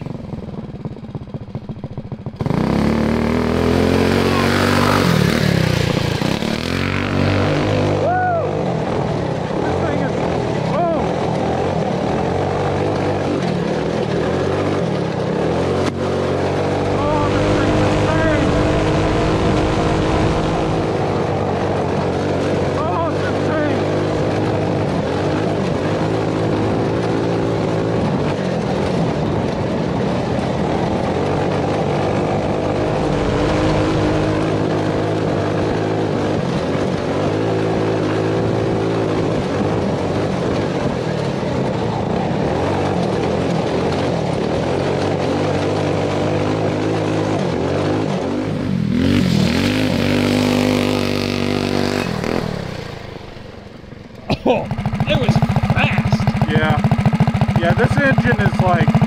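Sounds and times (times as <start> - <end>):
go-kart engine at high revs: 0.0 - 59.0.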